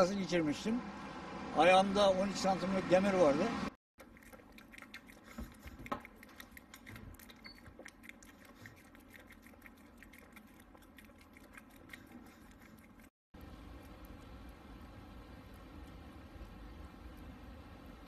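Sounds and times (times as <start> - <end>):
dog lapping drink: 4.0 - 13.1.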